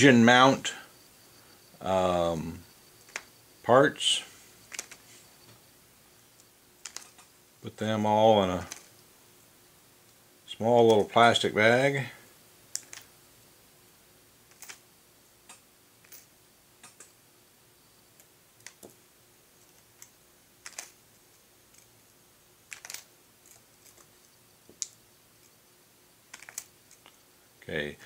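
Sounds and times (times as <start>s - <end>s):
small metal parts clicking: 4.6s - 5.0s, 6.8s - 7.3s, 8.6s - 9.0s, 12.7s - 13.1s, 14.5s - 14.8s, 15.5s - 17.1s, 19.6s - 21.0s, 22.6s - 25.6s, 26.3s - 27.2s.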